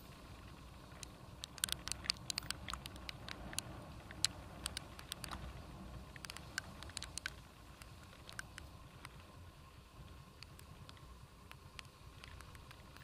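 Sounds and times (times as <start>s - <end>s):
motorcycle engine hum: 0.0s - 13.0s
raindrops ticking on camera: 0.0s - 13.0s.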